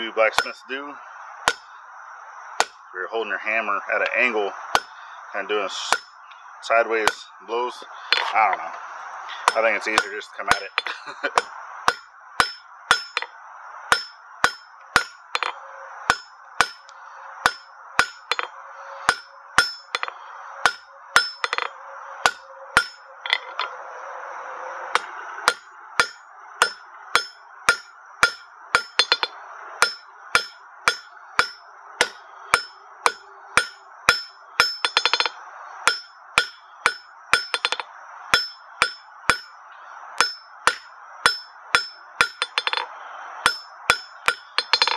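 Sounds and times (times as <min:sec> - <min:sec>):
hammer striking steel on anvil: 0:00.3 - 0:00.6, 0:01.5 - 0:01.7, 0:04.7 - 0:05.0, 0:05.8 - 0:06.2, 0:07.0 - 0:07.2, 0:09.4 - 0:13.3, 0:13.9 - 0:23.7, 0:25.0 - 0:39.5, 0:40.2 - 0:44.9.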